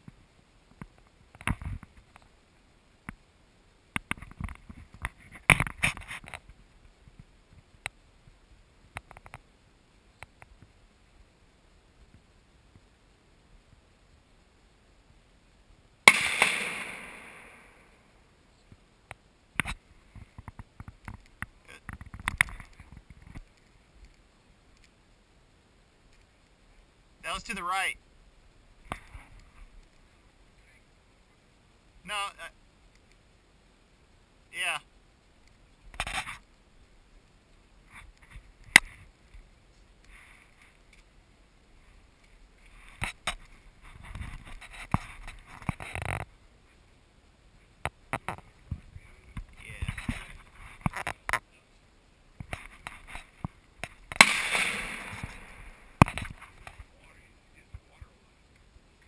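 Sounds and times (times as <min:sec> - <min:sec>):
rustling: 0:03.9 - 0:14.3, 0:34.5 - 0:59.0
gunshot echo: 0:16.1 - 0:17.9, 0:54.1 - 0:56.1
faint sharp clicks: 0:18.6 - 0:25.0, 0:26.1 - 0:26.6, 0:32.9 - 0:33.2.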